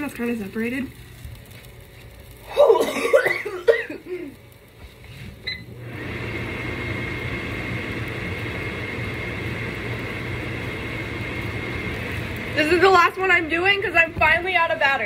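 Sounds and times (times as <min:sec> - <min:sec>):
range hood fan running: 0:00.0 - 0:15.0.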